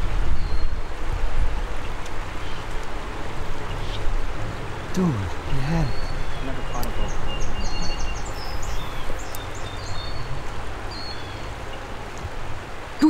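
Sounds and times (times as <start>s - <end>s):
small bird chirping: 5.2s - 11.6s.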